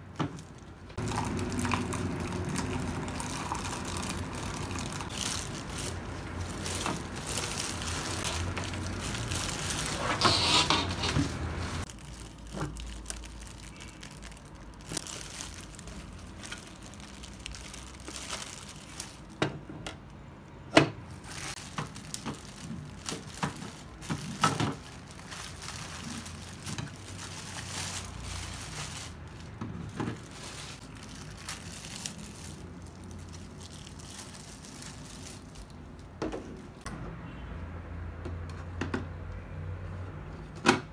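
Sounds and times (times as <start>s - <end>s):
plastic wrap crinkling: 0.0s - 19.7s, 21.1s - 36.9s.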